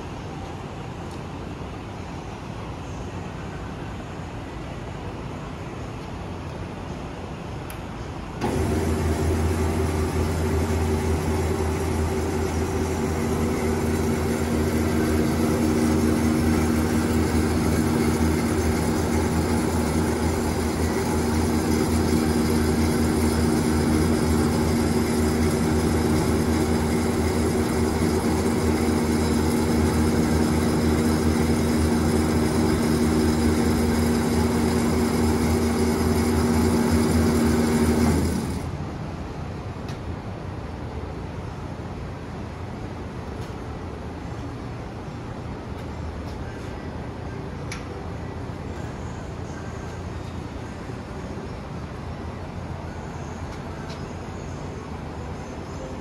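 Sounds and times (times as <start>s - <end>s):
band saw motor humming: 8.4s - 38.7s.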